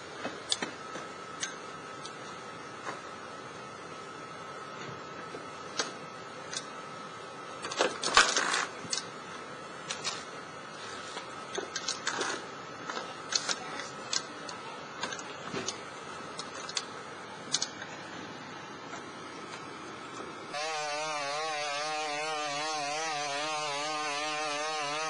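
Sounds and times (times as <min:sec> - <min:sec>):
faint high hum: 0:08.9 - 0:25.0.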